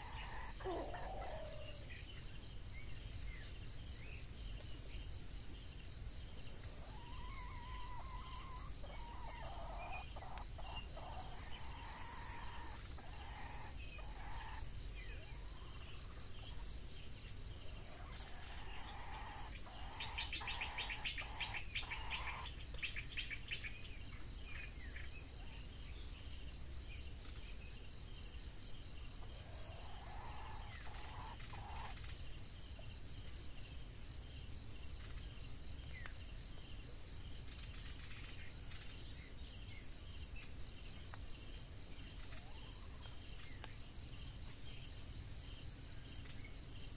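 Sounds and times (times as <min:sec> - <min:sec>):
junglefowl calling: 0:00.0 - 0:01.8, 0:06.8 - 0:16.2, 0:17.9 - 0:22.6, 0:29.4 - 0:32.1.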